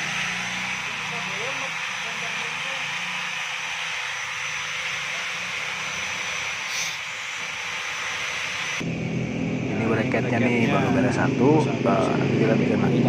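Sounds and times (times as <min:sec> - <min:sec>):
welding arc hissing: 0:00.0 - 0:13.0.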